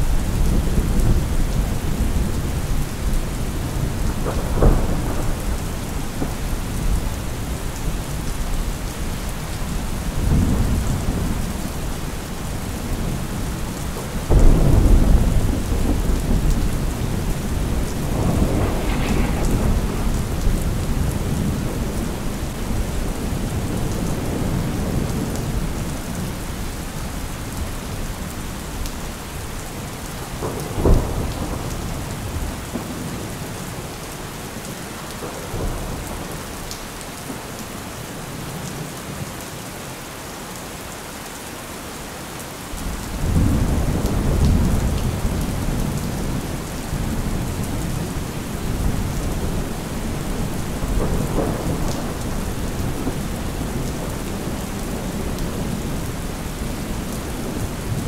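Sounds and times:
thunder rumbling: 0.0 - 26.3
steady rain: 0.0 - 58.0
sharp thunder crack: 14.3 - 22.8.

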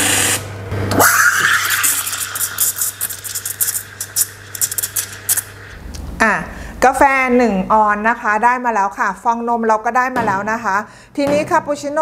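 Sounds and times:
steam wand frothing milk: 0.0 - 5.7
machine low hum: 0.0 - 9.4.

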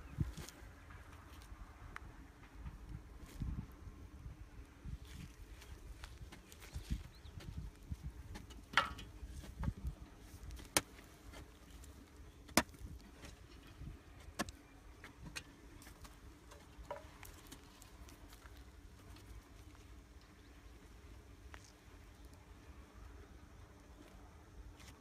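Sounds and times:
hoes digging into dry soil: 4.9 - 19.4.

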